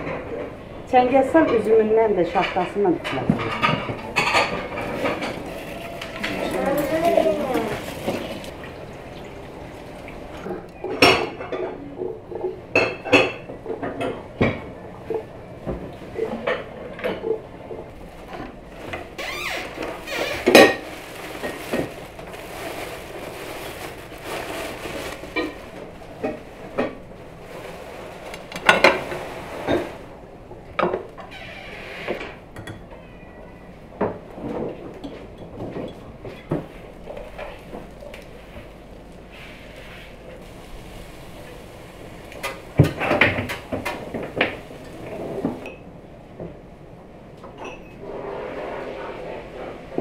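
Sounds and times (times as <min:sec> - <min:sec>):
dishes and cutlery clinking: 0:02.3 - 0:08.3.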